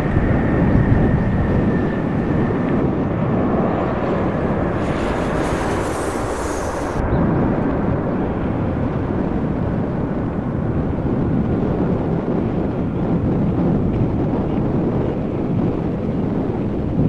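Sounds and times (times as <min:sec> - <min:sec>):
high whine: 0:00.0 - 0:13.2
jet engine rumble: 0:00.0 - 0:17.0
wind buffeting the microphone: 0:00.0 - 0:17.0.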